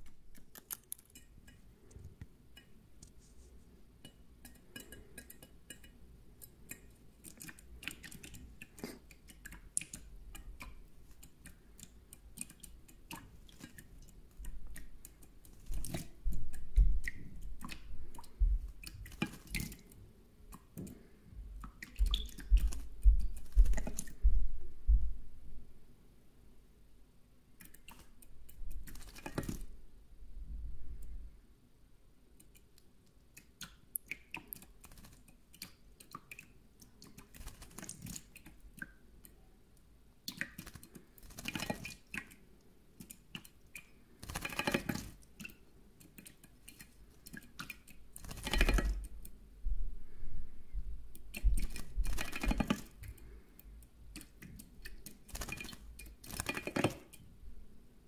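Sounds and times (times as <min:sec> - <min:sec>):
bird splashing in water: 0:18.8 - 0:19.8, 0:37.2 - 0:38.4, 0:40.3 - 0:42.4, 0:51.3 - 0:53.0, 0:54.9 - 0:57.1
droplets pattering on metal: 0:54.8 - 0:57.2.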